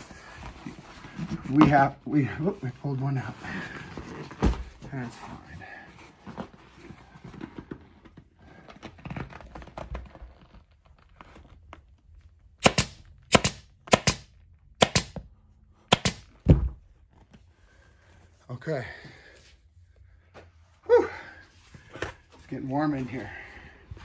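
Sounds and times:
vinyl cover rustling: 0.0 - 12.6
pneumatic stapler firing: 12.6 - 15.2, 15.9 - 16.3.

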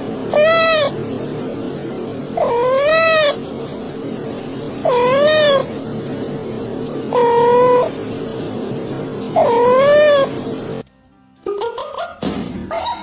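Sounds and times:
cat meowing: 0.3 - 1.0, 2.4 - 3.4, 4.8 - 5.8, 7.1 - 8.0, 9.4 - 10.4.

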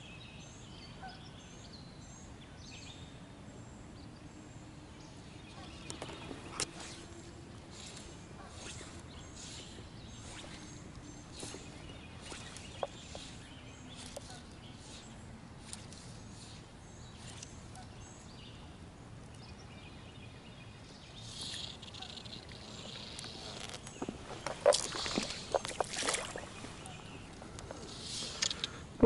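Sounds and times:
birds chirping and singing: 4.0 - 28.8.

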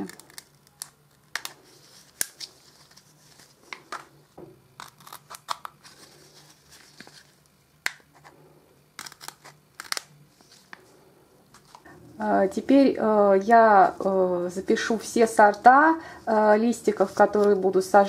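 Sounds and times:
scissors snipping plastic: 0.0 - 1.5
plastic crackling: 0.0 - 4.1, 4.8 - 8.3.

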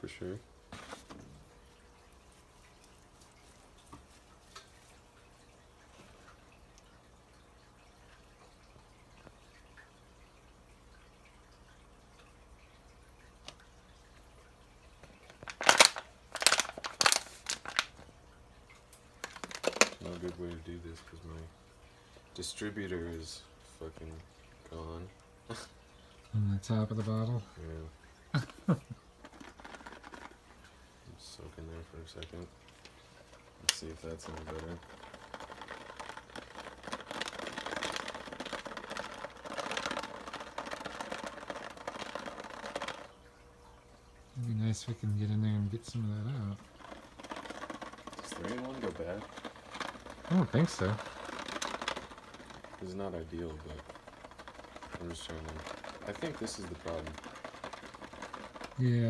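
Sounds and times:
plastic crinkling: 15.2 - 18.0, 19.2 - 20.6, 28.4 - 30.5, 32.7 - 43.2, 45.9 - 59.0
ball bearings rattling in bottle: 15.3 - 18.0, 19.2 - 21.4, 28.4 - 30.4, 33.2 - 43.2, 45.6 - 59.0.

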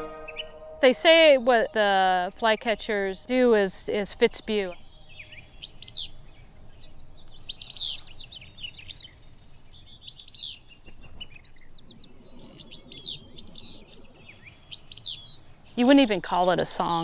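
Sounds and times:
bird singing two-part song: 0.0 - 3.3.

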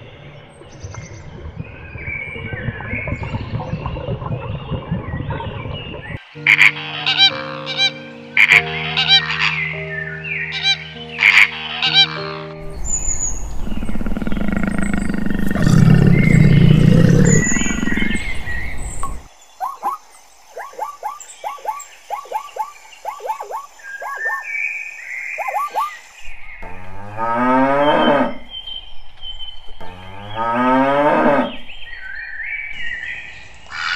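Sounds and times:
low rumbling animal call: 12.6 - 19.3
long lowing moo: 13.5 - 18.5, 26.6 - 28.5, 29.8 - 31.6.

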